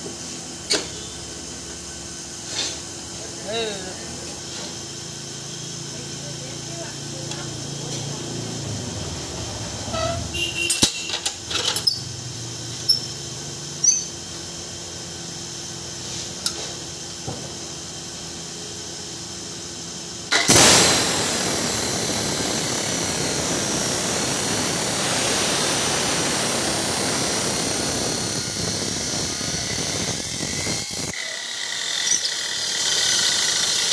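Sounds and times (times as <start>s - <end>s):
cut-off wheel grinding metal: 9.9s - 14.4s, 27.2s - 33.9s
chop saw hum: 27.4s - 33.9s.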